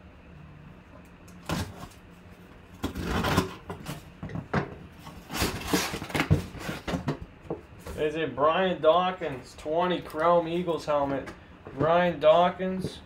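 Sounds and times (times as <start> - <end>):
knife slitting packing tape: 2.8 - 4.0, 5.2 - 6.9
cardboard flaps scraping and rustling: 5.0 - 8.1.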